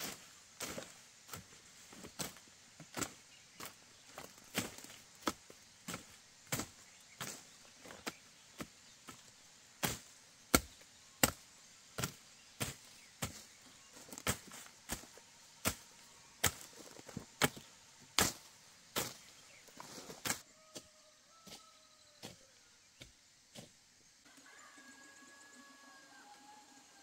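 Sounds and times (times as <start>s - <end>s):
hand tool chopping into earth: 9.8s - 11.4s, 14.2s - 15.8s, 16.4s - 17.6s, 18.2s - 19.3s.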